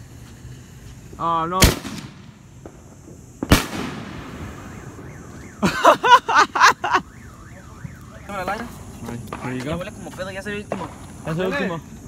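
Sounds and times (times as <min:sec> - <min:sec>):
firework bang: 0:01.6 - 0:06.0
car alarm: 0:04.5 - 0:08.7.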